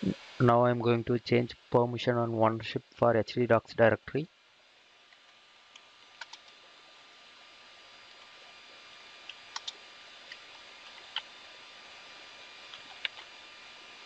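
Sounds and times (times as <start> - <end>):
computer keyboard key clicks: 9.5 - 9.8.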